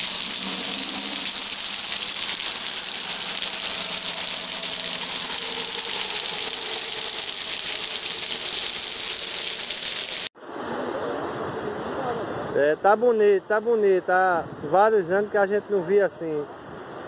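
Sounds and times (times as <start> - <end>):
heavy rain on street: 0.0 - 10.3.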